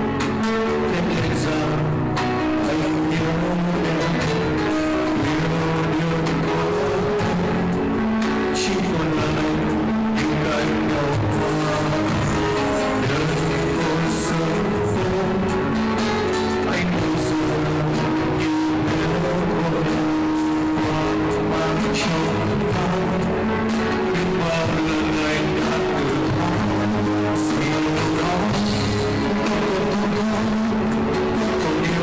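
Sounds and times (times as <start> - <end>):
live band playing: 0.0 - 32.0
man singing: 0.0 - 32.0.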